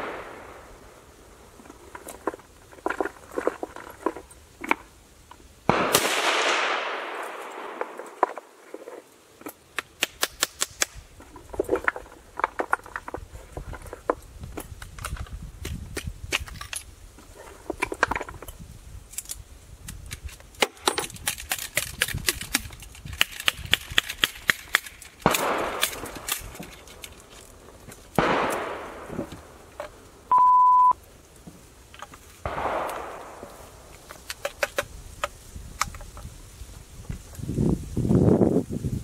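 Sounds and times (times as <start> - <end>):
short steady beep: 30.3 - 31.0.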